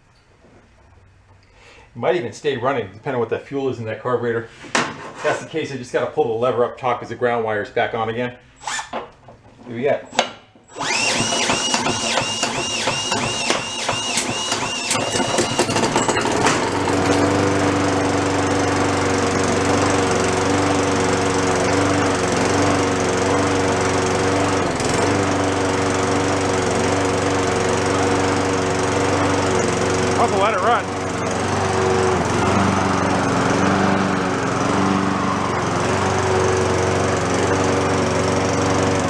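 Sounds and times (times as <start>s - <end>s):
cordless drill whining: 8.6s - 9.0s, 10.1s - 38.2s
lawn mower engine running: 10.2s - 39.0s.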